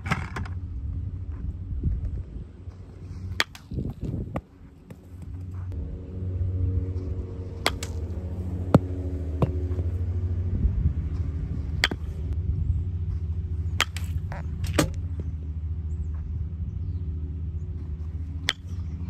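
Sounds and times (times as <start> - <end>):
low machine hum: 0.0 - 19.0
bat hitting baseballs: 3.0 - 10.4, 11.0 - 12.4, 13.2 - 15.3, 18.0 - 19.0.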